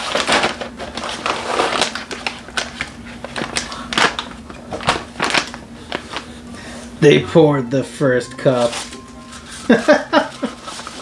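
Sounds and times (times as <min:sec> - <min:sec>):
coffee bag crinkling: 0:00.0 - 0:06.3, 0:08.6 - 0:11.0.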